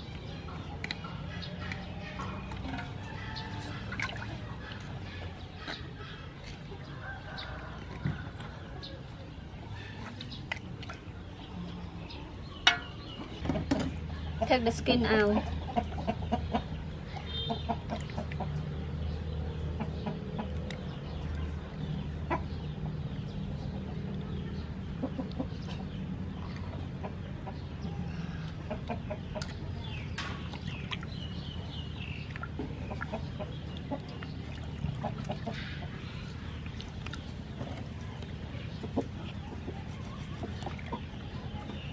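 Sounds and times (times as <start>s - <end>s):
chickens clucking: 0.0s - 21.4s, 22.0s - 41.9s.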